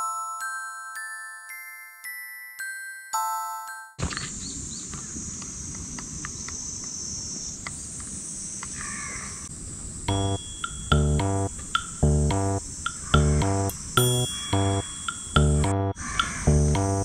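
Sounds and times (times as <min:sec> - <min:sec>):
music: 0:00.0 - 0:04.0, 0:10.1 - 0:12.6, 0:13.2 - 0:17.0
high insect drone: 0:04.4 - 0:17.0
crow cawing: 0:08.7 - 0:09.4, 0:14.4 - 0:14.6, 0:16.0 - 0:16.6.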